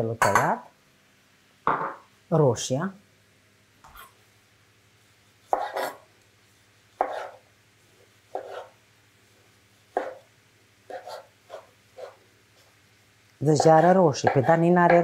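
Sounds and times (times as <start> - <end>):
knife cutting on cutting board: 5.5 - 6.0, 7.0 - 7.4, 8.3 - 8.8, 9.9 - 10.2, 10.9 - 12.2.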